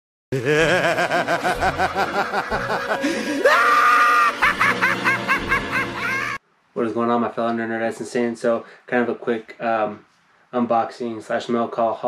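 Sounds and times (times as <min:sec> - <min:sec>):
maniacal cackling laugh: 0:00.4 - 0:06.4
long high held cry: 0:03.0 - 0:04.9.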